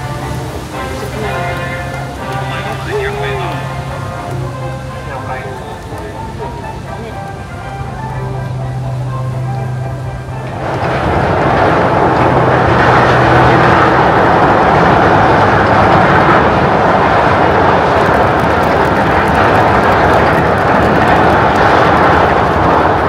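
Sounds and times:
ship sliding down launch ways: 0:00.0 - 0:23.0.

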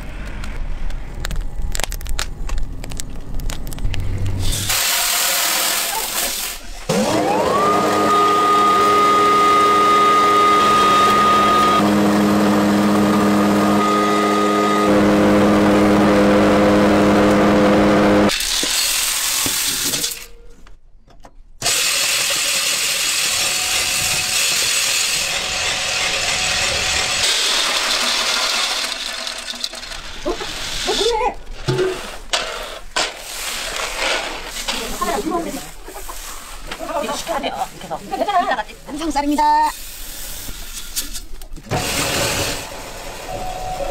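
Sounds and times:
grinder rushing noise grinding beans: 0:04.4 - 0:20.2, 0:21.6 - 0:31.0
grain grinder motor whining: 0:06.9 - 0:18.3, 0:21.6 - 0:30.3.

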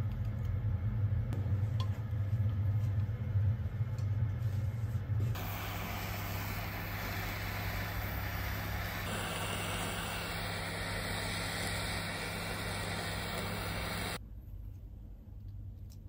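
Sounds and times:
butane torch hissing: 0:05.3 - 0:14.2.

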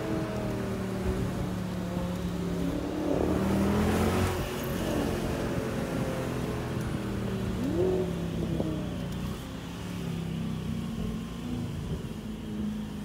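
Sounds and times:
sports car engine revving: 0:00.0 - 0:09.8.

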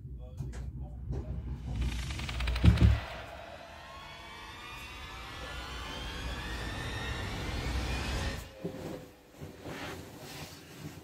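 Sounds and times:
low rumble: 0:00.0 - 0:08.6
rising tension tones: 0:00.6 - 0:09.4
bedding rustling: 0:08.5 - 0:11.0.

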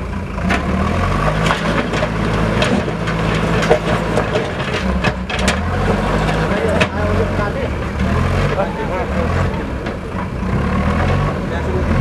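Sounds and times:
diesel engine under load: 0:00.0 - 0:12.0
rock and wood cracking: 0:00.5 - 0:07.1.

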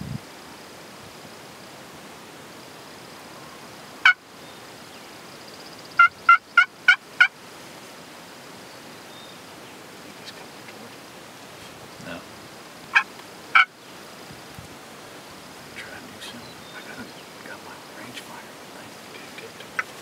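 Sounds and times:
turkey yelping: 0:06.0 - 0:07.3, 0:12.9 - 0:13.7.

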